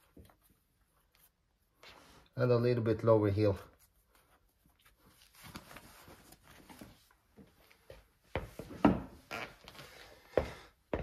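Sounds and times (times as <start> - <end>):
denim rustling: 3.4 - 10.3
boots stepping on wooden floor: 7.4 - 11.0.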